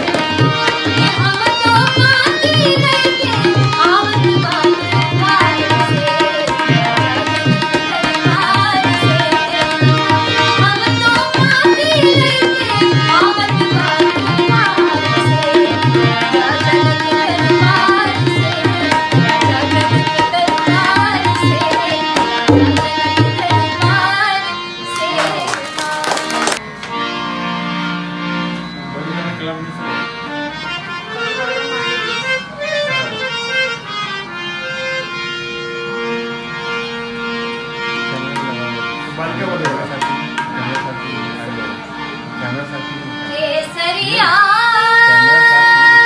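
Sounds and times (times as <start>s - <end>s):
tabla rhythm: 0.0s - 27.0s, 38.0s - 41.6s.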